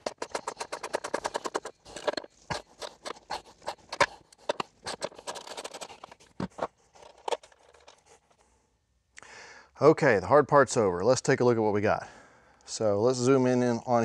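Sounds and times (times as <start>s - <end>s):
hand wrenches clicking and scraping: 0.0s - 8.1s.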